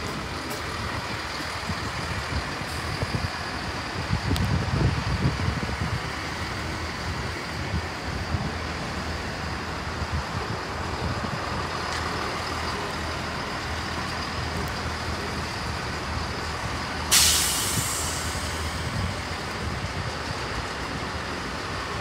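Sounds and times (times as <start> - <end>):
diesel trains idling: 0.0 - 22.0
air brake hiss: 17.1 - 18.9.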